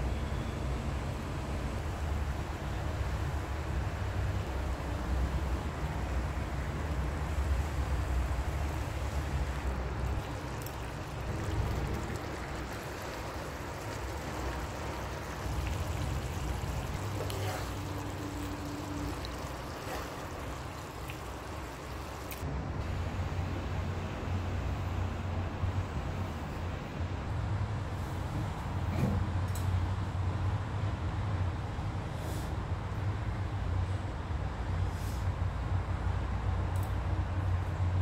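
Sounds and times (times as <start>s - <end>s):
stew bubbling in a pan: 7.7s - 22.4s.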